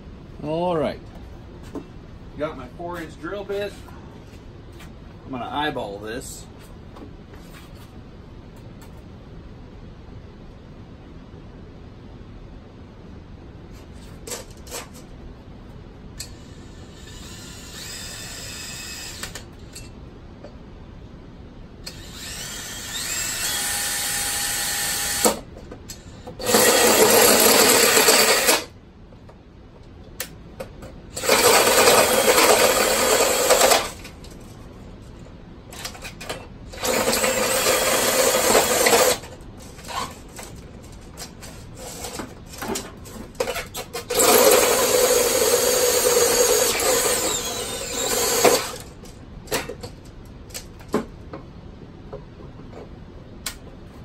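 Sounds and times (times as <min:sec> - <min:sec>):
cordless drill boring into plastic pipe: 0:16.8 - 0:19.4, 0:21.9 - 0:25.4, 0:26.4 - 0:28.7, 0:31.2 - 0:34.0, 0:36.8 - 0:39.2, 0:44.1 - 0:48.9.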